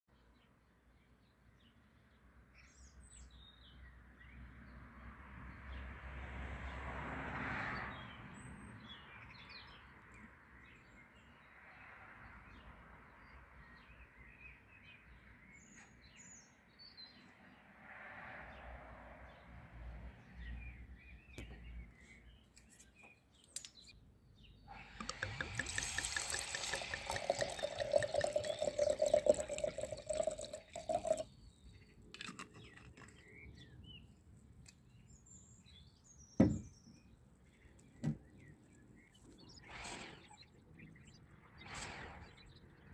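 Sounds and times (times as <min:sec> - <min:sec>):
birds chirping faintly: 0:20.2 - 0:42.9
wine pouring into a glass: 0:24.9 - 0:31.3.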